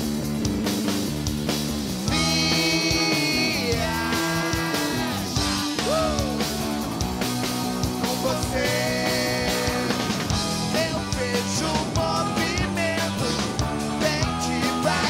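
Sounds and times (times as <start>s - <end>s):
bass notes: 0.0s - 15.0s
drums: 0.0s - 15.0s
electric guitar: 0.0s - 15.0s
man singing: 2.1s - 6.4s, 8.0s - 15.0s.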